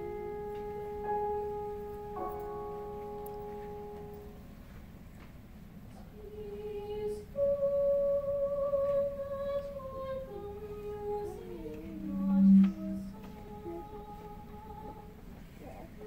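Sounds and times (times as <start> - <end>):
choir singing softly: 5.9 - 16.0.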